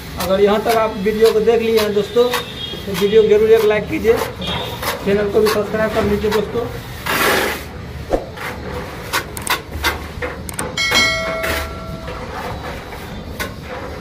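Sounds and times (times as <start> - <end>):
trowel tapping and scraping mortar: 0.2 - 7.4
bell-like chime: 10.8 - 12.2.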